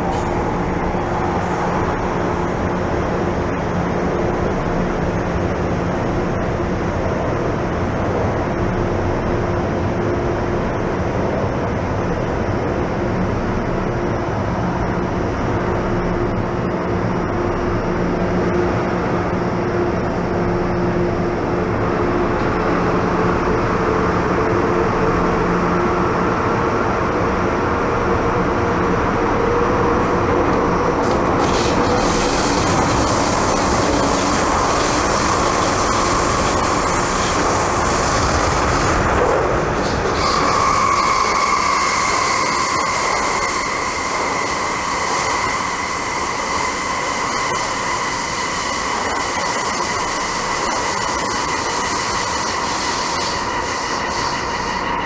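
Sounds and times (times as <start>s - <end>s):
train wheels rumbling on track: 0.0s - 55.0s
electric motor hum: 31.0s - 39.0s.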